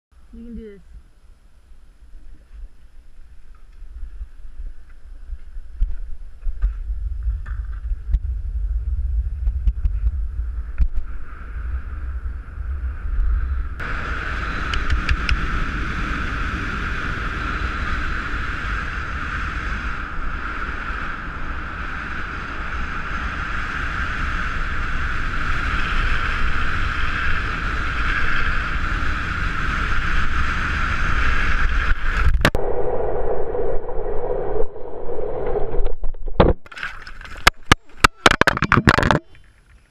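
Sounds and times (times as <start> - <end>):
skateboard wheels rolling on asphalt: 1.0 - 32.6
wind buffeting microphone: 2.0 - 36.4.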